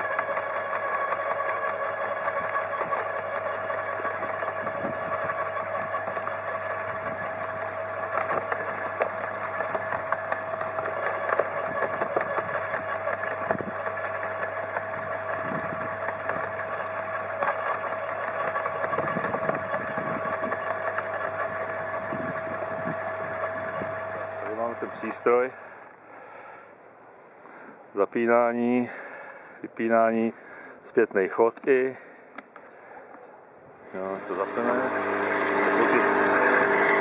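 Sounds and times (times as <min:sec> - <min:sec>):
motor whining: 0:00.0 - 0:26.8, 0:32.3 - 0:37.0
small clicks and knocks: 0:07.2 - 0:13.7.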